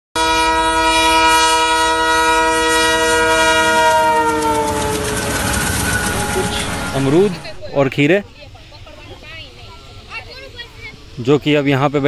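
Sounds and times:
train horn: 0:00.2 - 0:08.2
train coaches rumbling and clattering: 0:02.3 - 0:12.0.

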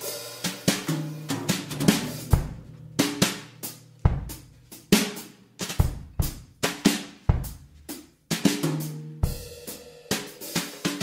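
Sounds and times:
drum kit beat: 0:00.0 - 0:11.0
low bass line: 0:02.0 - 0:04.8.

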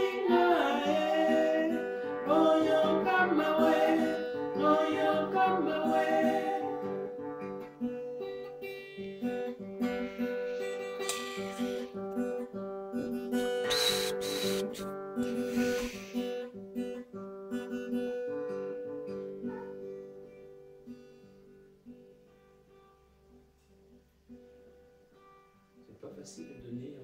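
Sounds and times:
person singing: 0:00.0 - 0:07.0, 0:13.6 - 0:16.1
acoustic guitar chords: 0:00.0 - 0:27.0.

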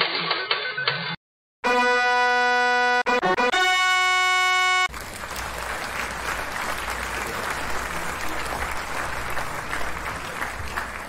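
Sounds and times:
crowd clapping: 0:04.7 - 0:11.0.

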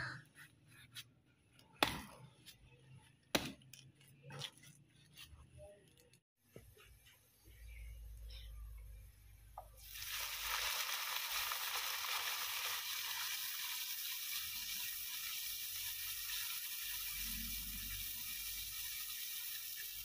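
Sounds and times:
food sizzling in hot oil: 0:09.8 - 0:20.0.

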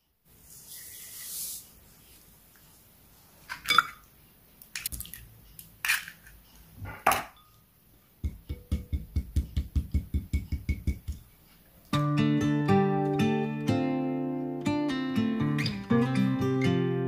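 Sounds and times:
eggs tapped on bowl: 0:08.2 - 0:11.2.

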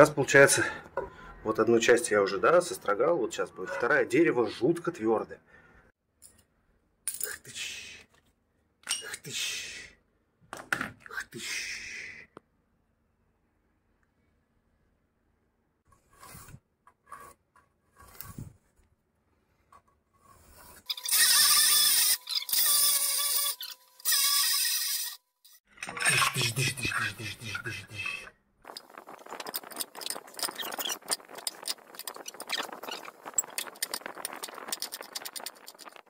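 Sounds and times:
rapid scraping strokes on wood: 0:28.7 - 0:36.0
hand tool squealing on hard wood: 0:29.4 - 0:36.0.

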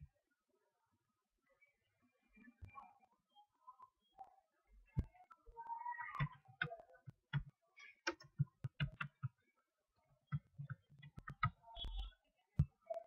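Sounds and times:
computer mouse clicking: 0:08.1 - 0:09.3, 0:10.3 - 0:12.1.

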